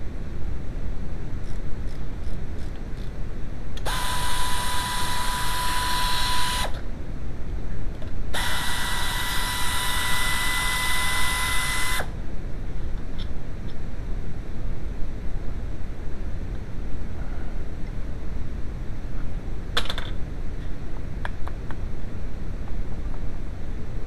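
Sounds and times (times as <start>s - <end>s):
power ratchet whine: 3.8s - 6.9s, 8.3s - 12.2s.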